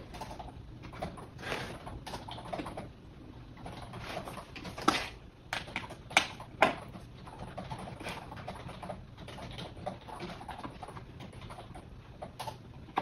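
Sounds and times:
keyboard typing: 0.0s - 2.9s, 5.6s - 13.0s.

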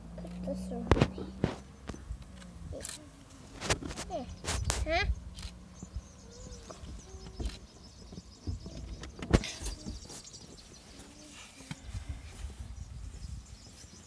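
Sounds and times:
camera handling rumble and knocks: 0.2s - 3.0s, 3.6s - 5.6s, 6.6s - 10.3s.

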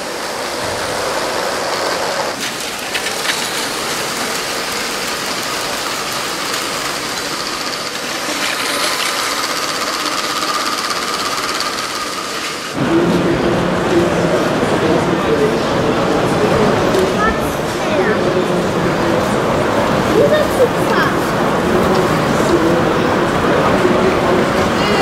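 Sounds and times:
wheels clicking on track: 0.0s - 12.8s
toy train motor whirring: 0.5s - 12.8s.

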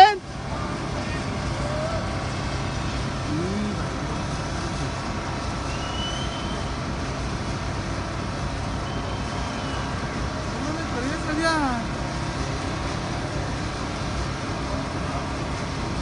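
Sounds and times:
heavy machinery engines running: 0.0s - 16.0s.

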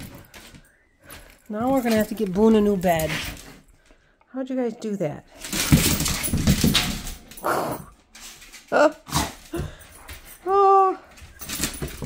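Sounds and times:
ball and paws knocking on tile: 5.4s - 7.5s.

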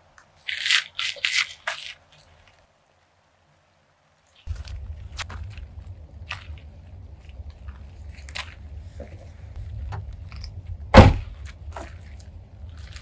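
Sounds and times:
footsteps on gravel: 4.4s - 13.0s
low steady rumble: 4.5s - 13.0s
car trunk lid slamming: 10.9s - 11.3s.

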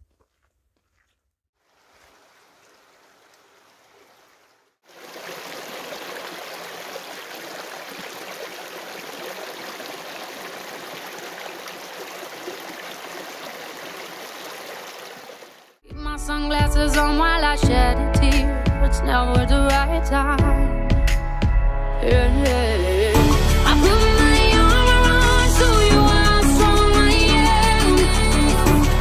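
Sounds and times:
stream running over rocks: 1.6s - 15.8s.

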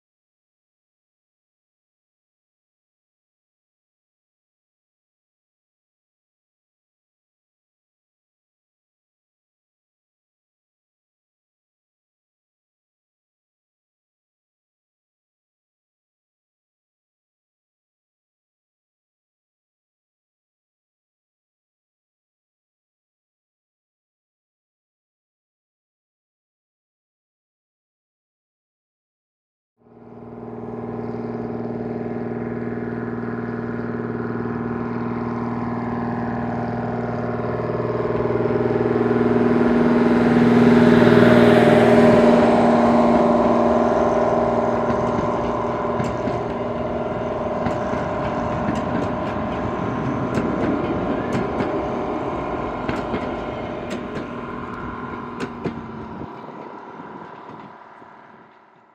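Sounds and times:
locomotive running: 29.8s - 58.9s
train wheels clicking over rail joints: 41.6s - 58.9s.

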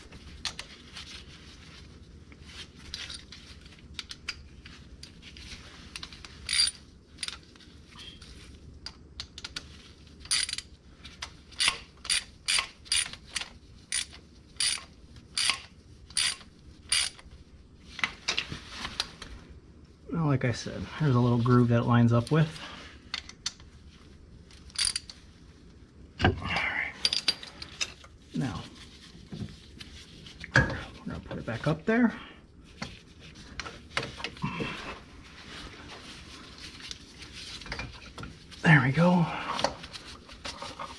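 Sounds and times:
handling rustle: 27.3s - 31.8s, 32.6s - 40.9s.

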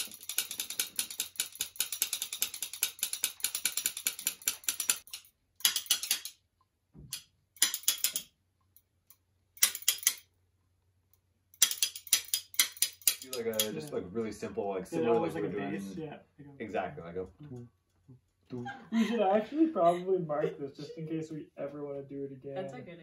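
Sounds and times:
rapid ratchet-like clicking: 0.0s - 6.4s, 7.1s - 8.3s, 9.6s - 10.3s, 11.6s - 13.7s.

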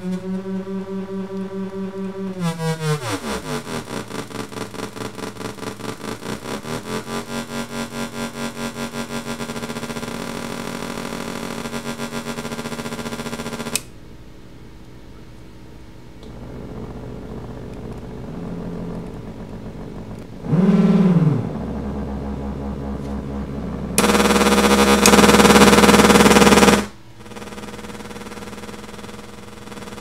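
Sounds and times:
harsh noisy synth blast: 0.0s - 13.7s, 16.3s - 30.0s
buzzy synthesizer tones: 0.0s - 14.5s, 15.5s - 30.0s.

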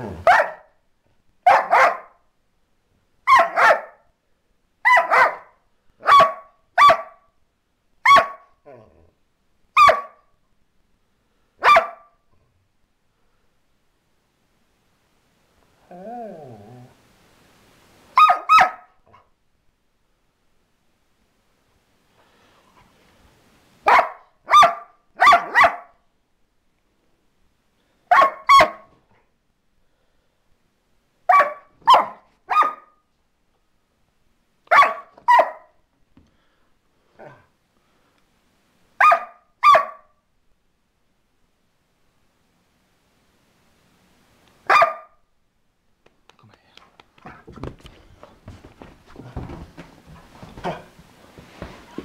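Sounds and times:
dog barking: 0.0s - 0.8s, 1.4s - 2.2s, 3.3s - 4.1s, 4.8s - 7.3s, 8.0s - 8.6s, 9.8s - 10.3s, 11.6s - 12.2s, 18.2s - 19.3s, 23.8s - 26.0s, 28.1s - 28.9s, 31.3s - 33.0s, 34.7s - 35.8s, 39.0s - 40.2s, 44.6s - 45.2s.

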